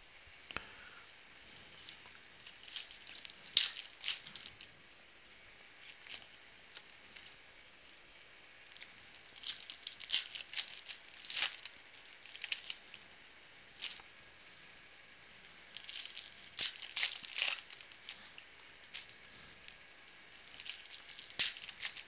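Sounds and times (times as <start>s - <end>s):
foil wrappers crinkling: 1.5s - 4.7s, 5.8s - 13.0s, 13.7s - 14.1s, 15.6s - 22.0s.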